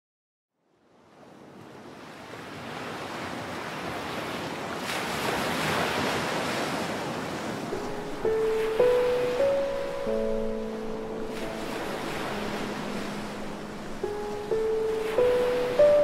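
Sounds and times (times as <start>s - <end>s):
ocean surf on sandy beach: 0.9s - 16.0s
sustained music notes: 7.8s - 16.0s.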